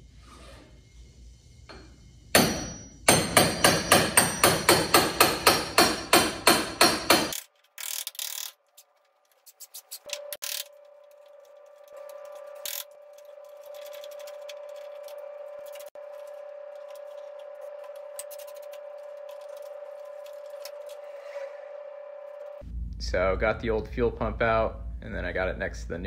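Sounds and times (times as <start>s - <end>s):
hammer striking chisel on metal: 1.7s - 7.4s.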